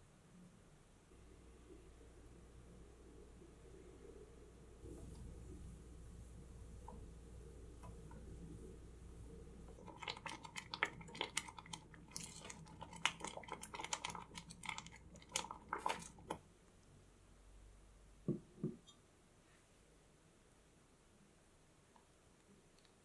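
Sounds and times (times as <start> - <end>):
custard squelching while stirred: 9.3 - 16.5.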